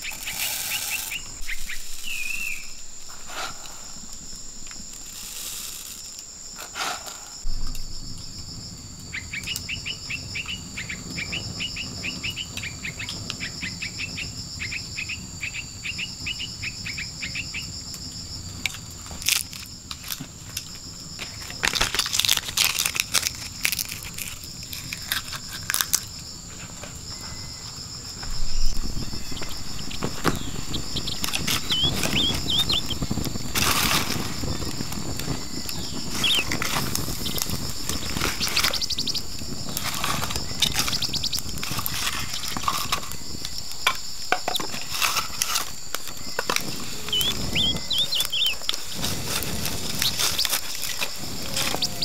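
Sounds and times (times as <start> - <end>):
campfire crackling: 0.0 - 52.0
insects chirring: 0.0 - 52.0
bamboo tubes knocking: 43.8 - 45.2.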